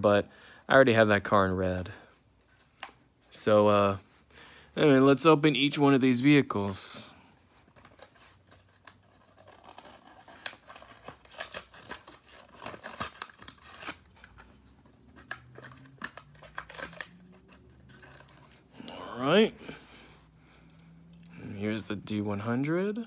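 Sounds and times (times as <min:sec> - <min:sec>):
plastic packaging crinkling and tearing: 0:05.7 - 0:19.4.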